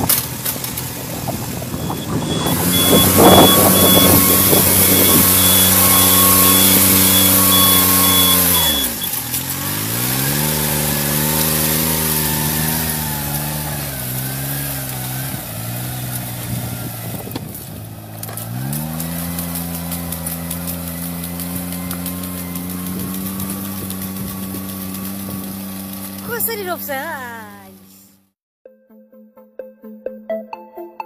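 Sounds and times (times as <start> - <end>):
engine running: 0.0 - 28.4
high beep: 1.8 - 9.0.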